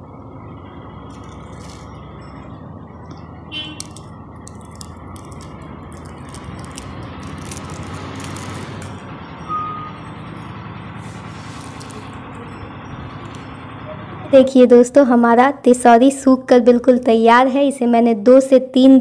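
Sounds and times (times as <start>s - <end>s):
dry lentil wadis crunching: 1.0s - 2.5s, 3.1s - 9.0s, 11.0s - 12.5s, 13.2s - 13.6s
short beep: 9.4s - 10.5s.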